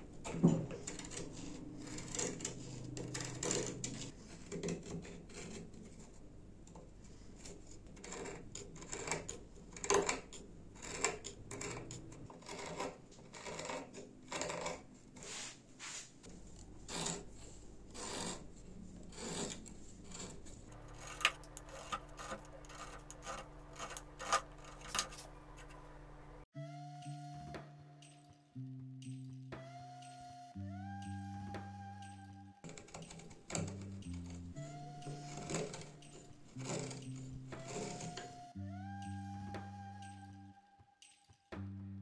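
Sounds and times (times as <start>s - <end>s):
wood scraped with abrasive: 0.7s - 6.1s, 10.8s - 26.5s, 32.7s - 38.6s.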